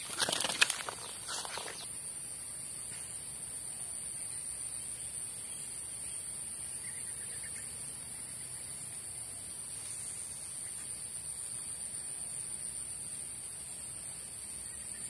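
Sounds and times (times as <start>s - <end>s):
high-pitched insect chorus: 0.0s - 15.0s.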